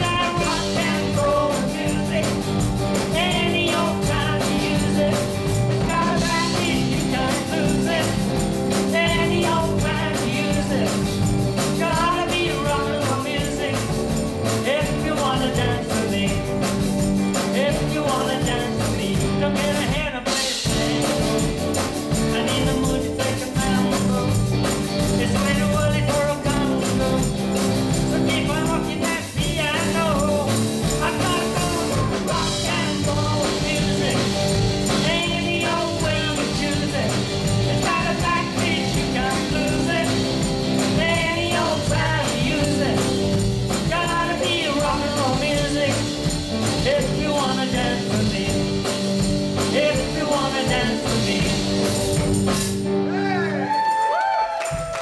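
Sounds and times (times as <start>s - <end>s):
bass guitar: 0.0s - 55.0s
drum kit: 0.0s - 55.0s
electric guitars: 0.0s - 55.0s
woman singing: 3.1s - 11.0s.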